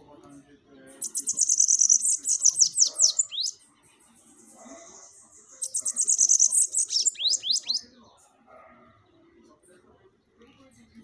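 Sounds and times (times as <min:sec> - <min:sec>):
bird singing buzzy trill: 0:00.5 - 0:08.0.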